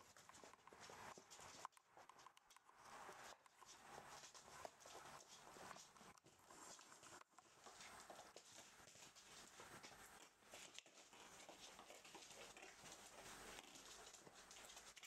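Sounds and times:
puppy claws clicking on floor: 0.0s - 15.0s.

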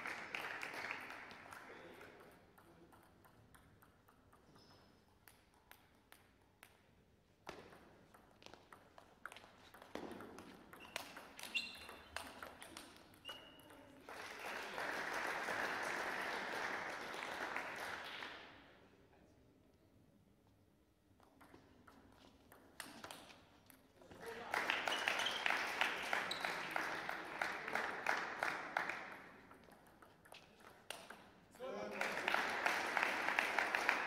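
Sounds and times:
applause: 0.0s - 2.4s, 13.9s - 18.7s, 24.1s - 29.5s, 31.7s - 34.0s
table tennis ball clicking: 2.2s - 6.8s, 7.4s - 13.8s.

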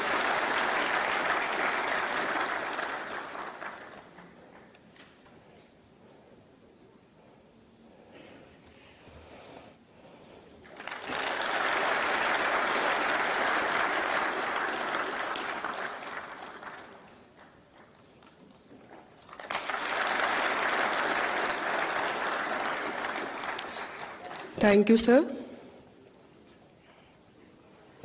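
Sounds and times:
audience applauding: 0.0s - 4.7s, 10.6s - 24.6s.

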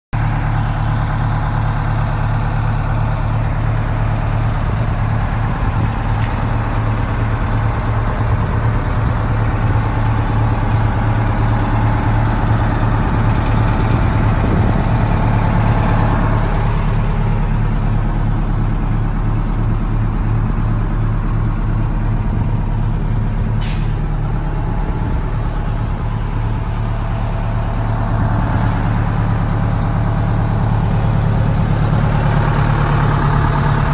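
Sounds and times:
fire engine idling: 0.1s - 33.9s
air hissing: 23.6s - 24.1s.

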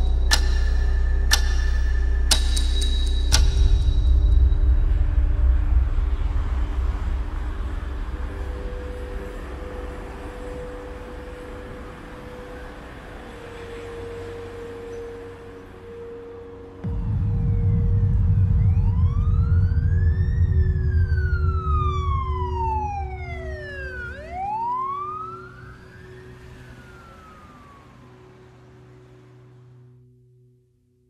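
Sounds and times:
deep rumble: 0.0s - 10.8s, 16.8s - 24.6s
steady low hum: 0.0s - 13.4s, 16.8s - 25.4s
siren wailing: 7.7s - 29.8s.

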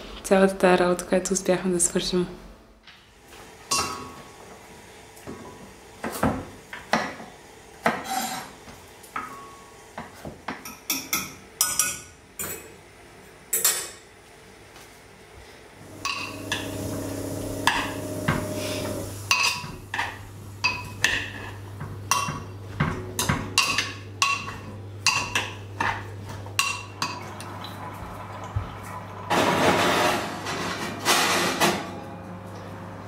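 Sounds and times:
dishes and pots clinking: 3.7s - 4.2s, 15.9s - 27.5s
low steady hum: 15.8s - 29.0s.

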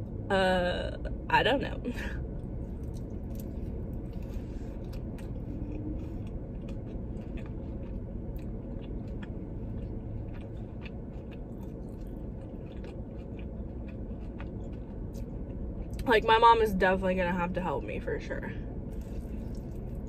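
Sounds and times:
person chewing chicken wing: 2.8s - 16.0s, 18.9s - 20.0s.

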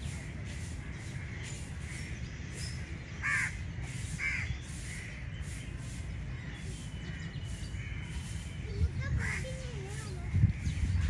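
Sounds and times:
crow cawing: 3.2s - 3.6s.

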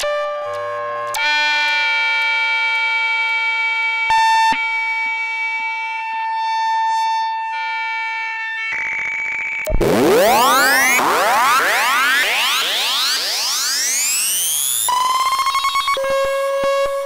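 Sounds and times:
synthesizer drone with pitch glides: 8.8s - 17.0s.

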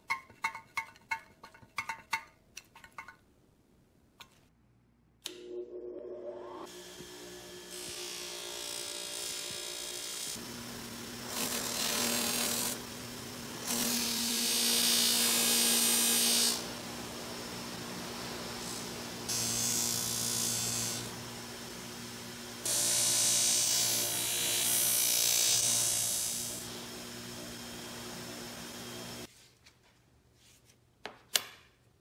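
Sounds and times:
bench grinder motor hum: 5.4s - 29.3s.

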